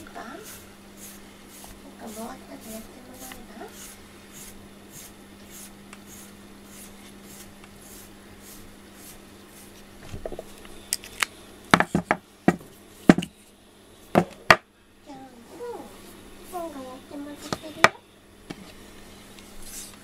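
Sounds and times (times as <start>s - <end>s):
brush strokes through cat fur: 0.3s - 9.8s.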